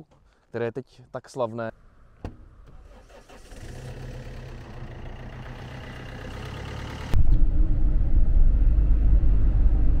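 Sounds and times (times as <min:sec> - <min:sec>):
van driving rumble: 0:02.4 - 0:10.0
diesel engine idling: 0:02.7 - 0:07.2.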